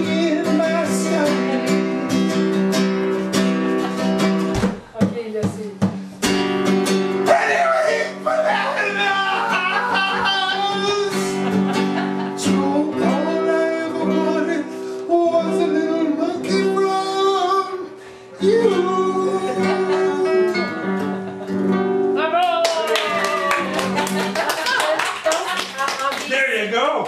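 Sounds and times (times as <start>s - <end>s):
man singing: 0.0s - 2.0s, 7.3s - 11.5s, 12.4s - 20.9s
strummed acoustic guitar: 0.0s - 22.2s.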